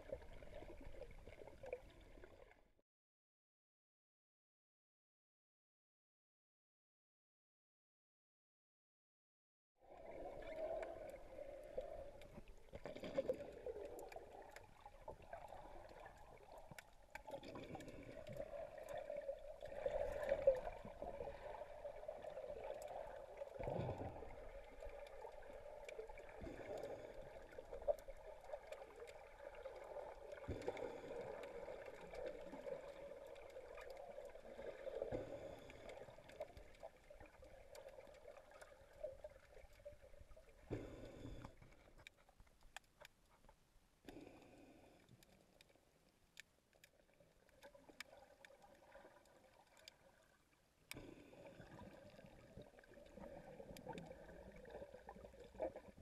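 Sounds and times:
water sloshing underwater: 0:00.0 - 0:02.7, 0:09.8 - 0:56.0
faint clicks: 0:40.7 - 0:50.0, 0:50.9 - 0:51.2.

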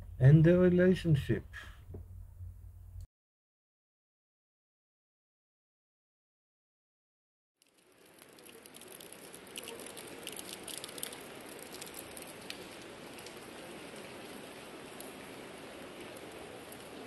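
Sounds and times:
rain falling: 0:07.6 - 0:17.0
raindrop taps: 0:07.6 - 0:17.0.

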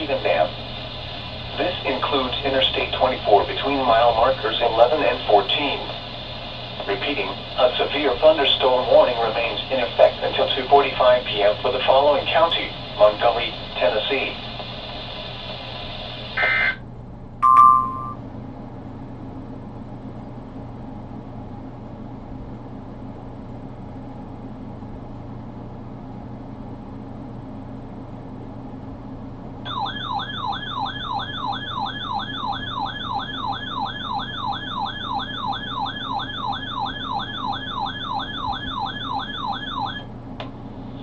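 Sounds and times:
low electrical hum: 0:00.0 - 0:41.0
warbling radio alert alarm: 0:16.4 - 0:16.8, 0:29.7 - 0:40.1.

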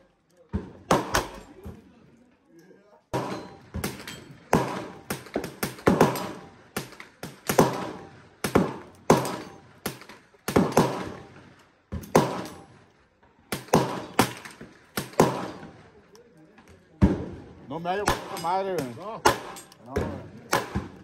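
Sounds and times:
gunshots with echo: 0:00.8 - 0:01.5, 0:03.2 - 0:11.4, 0:13.5 - 0:15.8, 0:18.0 - 0:21.0.

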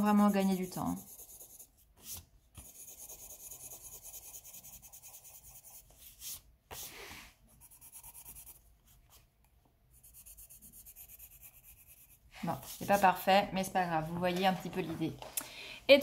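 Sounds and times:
pencil rubbing on paper: 0:00.0 - 0:09.2, 0:09.9 - 0:13.3.

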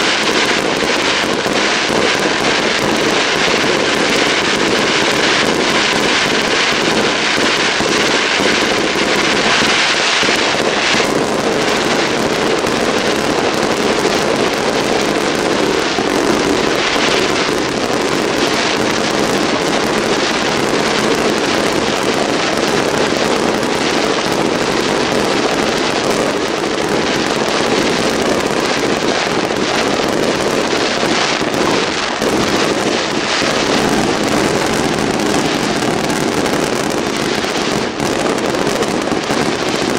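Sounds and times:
fireworks bursting: 0:00.0 - 0:39.9.

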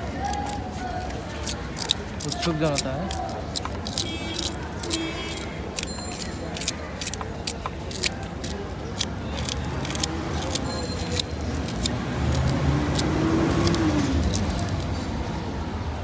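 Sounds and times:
road traffic rumble: 0:00.0 - 0:16.0
knife cutting fruit: 0:00.1 - 0:14.9
engine hum: 0:07.3 - 0:16.0.

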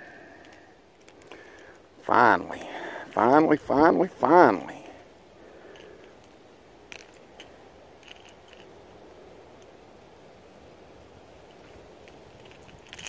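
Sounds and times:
faint steady hiss: 0:00.0 - 0:13.0.

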